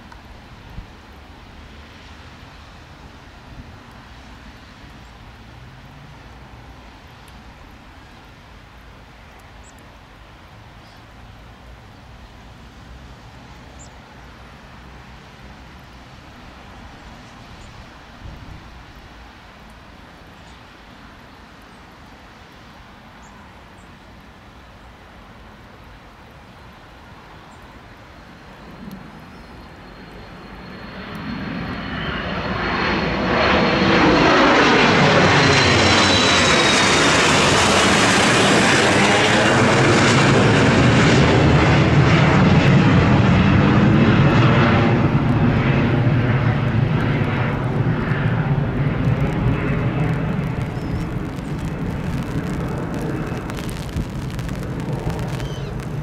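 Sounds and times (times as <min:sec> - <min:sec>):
jet engines roaring: 0:28.0 - 0:56.0
high jet whine: 0:28.2 - 0:56.0.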